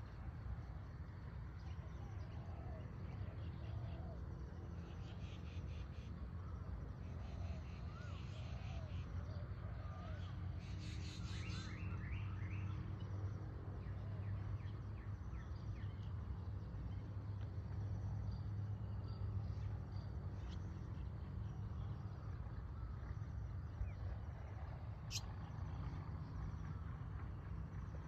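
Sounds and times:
steady low hum: 0.0s - 28.0s
faint bird chirps: 4.8s - 26.8s.

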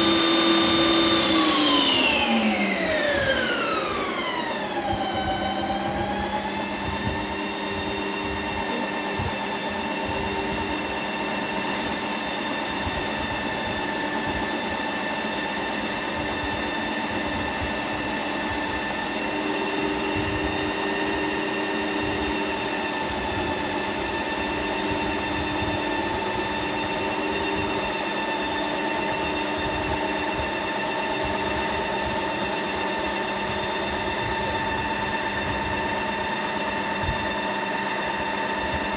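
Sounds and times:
ice cream maker motor whining: 0.0s - 38.9s.

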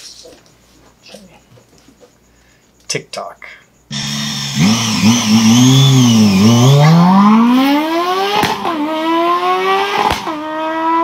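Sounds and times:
motorcycle engine accelerating: 3.9s - 11.0s.

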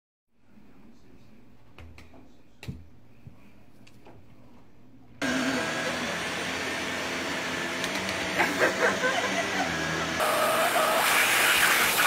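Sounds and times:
vacuum cleaner motor running: 5.2s - 12.0s.

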